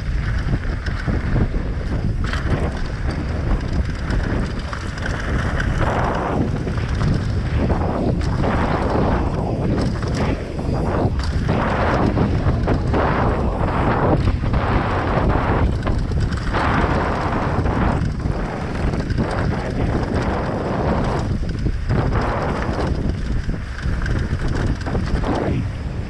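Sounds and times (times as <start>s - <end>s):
constant low rumble: 0.0s - 26.0s
wind buffeting microphone: 0.0s - 26.0s.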